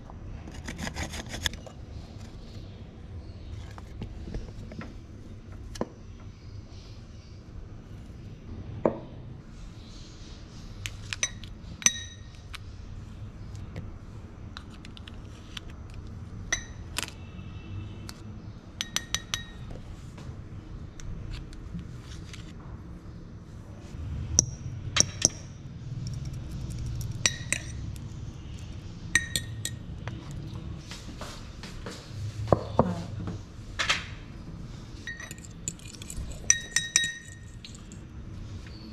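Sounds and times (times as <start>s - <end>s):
spoon clinking glass bowl: 11.2s - 12.4s, 16.5s - 16.8s, 18.8s - 19.7s, 27.2s - 27.9s, 29.1s - 30.3s, 35.0s - 38.0s.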